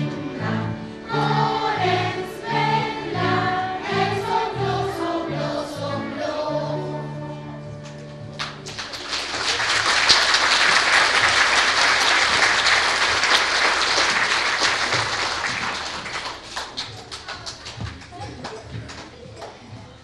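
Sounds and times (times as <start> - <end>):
children's choir singing: 0.0 - 7.7
audience applause: 8.4 - 18.6.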